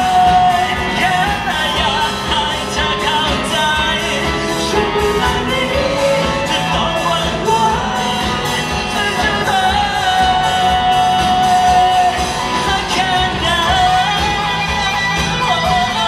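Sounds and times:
drums: 0.0s - 16.0s
guitar: 0.0s - 16.0s
person singing lead vocals: 0.0s - 16.0s.

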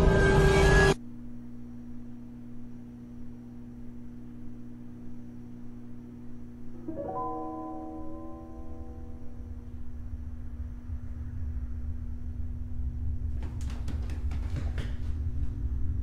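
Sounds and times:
low steady drone: 0.0s - 13.3s
soft held chord: 6.5s - 10.8s.

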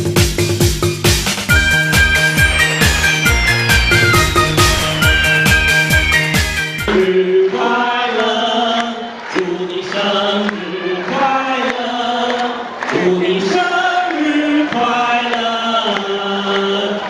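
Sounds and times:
choir-like vocal melody: 1.5s - 8.8s.

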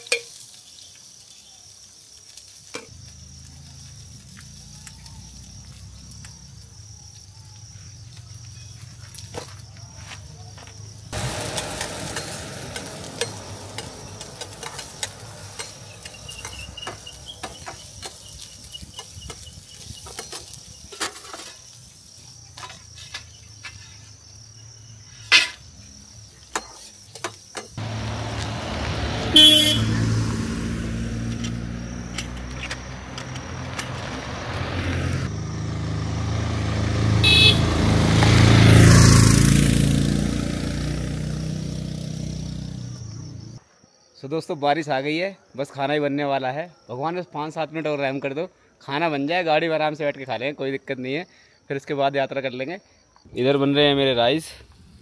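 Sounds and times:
vehicle engines running: 7.9s - 20.4s, 27.2s - 43.6s
vehicle passing: 11.1s - 18.1s, 27.8s - 43.6s
horn blasts: 28.9s - 30.2s, 37.2s - 37.8s.

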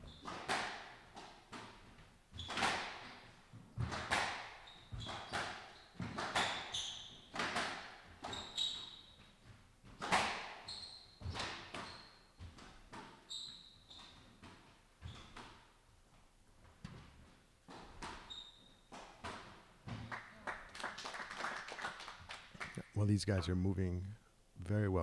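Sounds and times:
squash ball hits: 0.2s - 1.8s, 2.4s - 3.1s, 3.8s - 8.4s, 9.8s - 10.6s
shoes squeaking on wooden floor: 2.3s - 15.8s, 16.6s - 20.0s.

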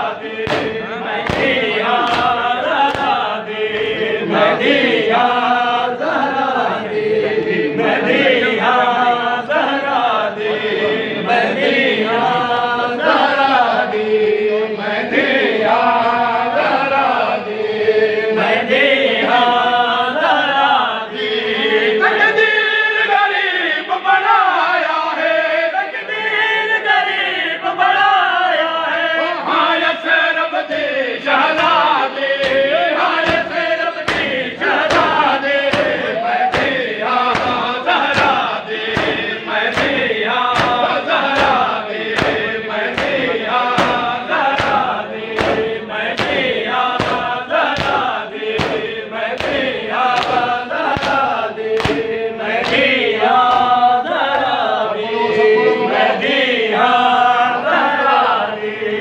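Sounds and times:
men chanting in unison: 0.0s - 59.0s
hands beating on chests: 0.4s - 3.9s, 31.5s - 54.5s.

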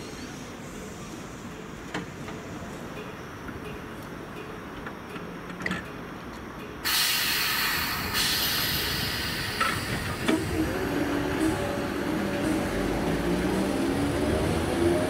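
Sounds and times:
compressed air hiss: 6.9s - 12.6s
train traction motor hum: 6.9s - 15.0s.

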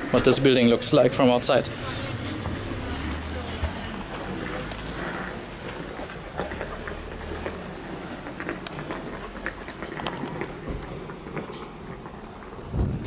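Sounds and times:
footsteps on wet pavement: 0.0s - 13.0s
low street rumble: 0.0s - 13.0s.

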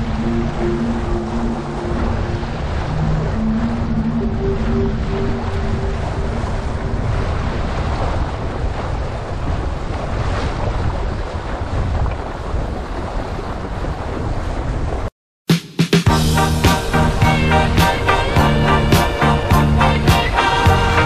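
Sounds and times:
water rushing: 0.0s - 15.1s, 16.1s - 21.0s
wind buffeting microphone: 0.0s - 15.1s.

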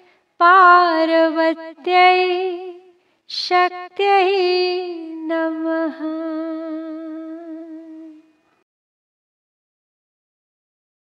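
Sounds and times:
woman singing a devotional chant: 0.0s - 8.4s
singer breathing: 3.0s - 3.3s.

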